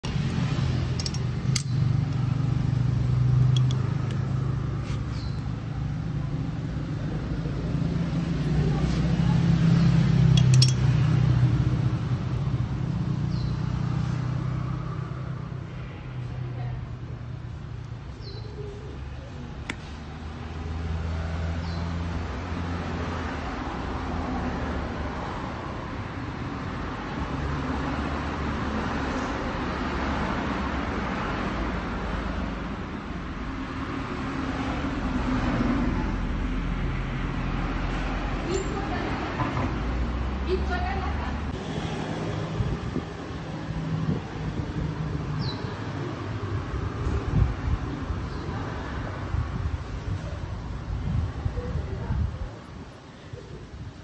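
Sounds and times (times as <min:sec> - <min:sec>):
sharp click: 0:01.0 - 0:01.8.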